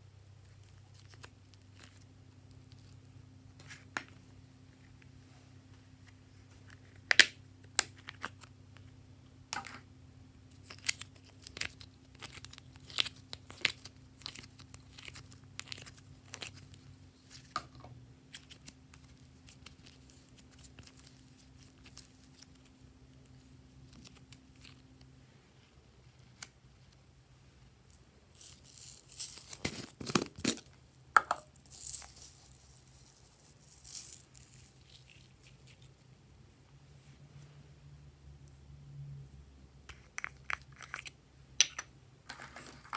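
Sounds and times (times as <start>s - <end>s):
faint low hum: 0.0s - 42.9s
crackling and rustling: 27.8s - 30.8s, 31.4s - 37.3s, 42.2s - 42.9s.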